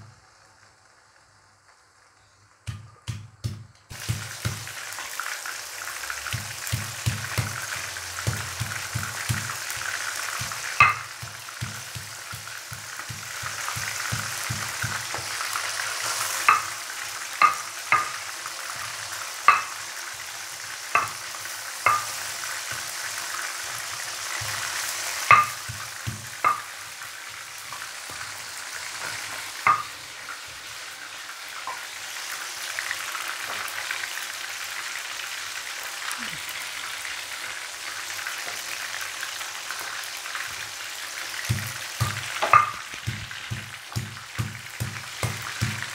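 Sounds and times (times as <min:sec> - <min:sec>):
fish deep-frying in oil: 0:00.0 - 0:45.9.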